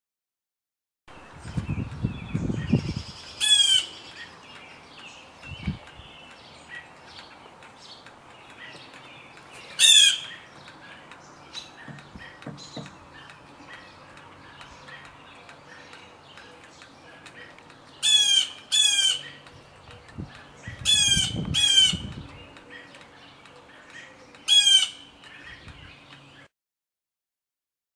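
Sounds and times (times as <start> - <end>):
blue jay harsh calls: 2.6 - 4.4, 8.4 - 14.0, 17.9 - 22.3, 24.4 - 25.6.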